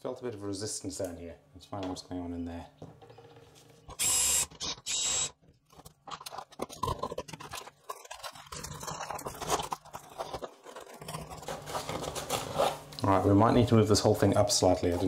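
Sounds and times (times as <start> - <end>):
cordless drill running: 3.9 - 5.3
cardboard honeycomb crunching: 5.6 - 13.3.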